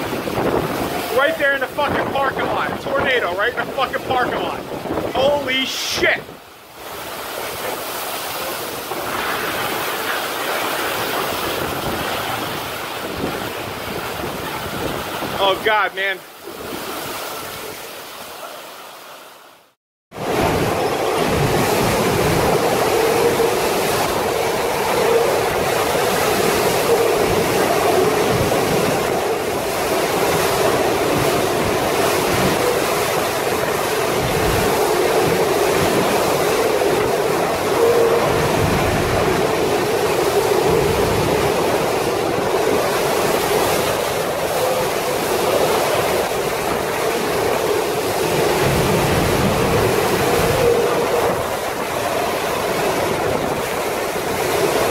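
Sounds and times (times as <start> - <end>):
heavy rain: 0.0 - 15.5
storm wind: 0.0 - 18.2, 20.1 - 54.9.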